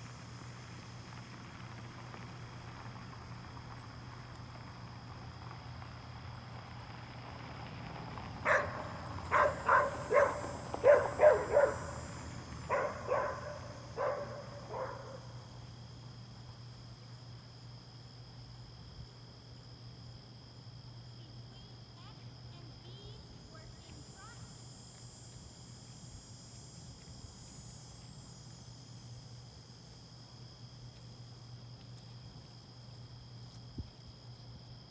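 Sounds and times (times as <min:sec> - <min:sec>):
dog barking: 0:08.4 - 0:12.0, 0:12.7 - 0:15.4.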